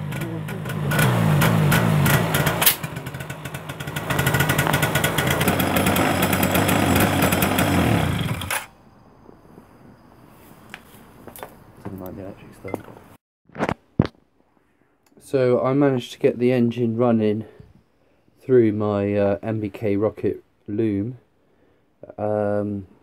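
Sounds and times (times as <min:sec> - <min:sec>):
scooter engine running: 0:00.0 - 0:08.7.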